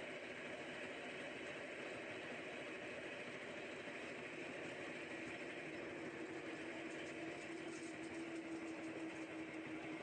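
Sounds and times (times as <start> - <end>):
drone propellers humming: 0.0 - 10.0.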